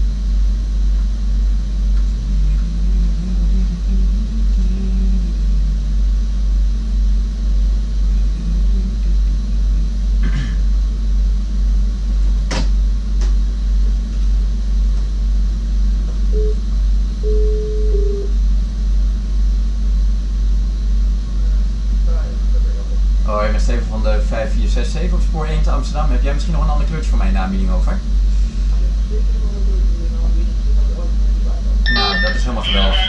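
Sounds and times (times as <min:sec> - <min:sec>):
low hum in train cab: 0:00.0 - 0:33.0
short electronic beeps: 0:16.4 - 0:16.6, 0:17.2 - 0:18.3, 0:31.9 - 0:33.0.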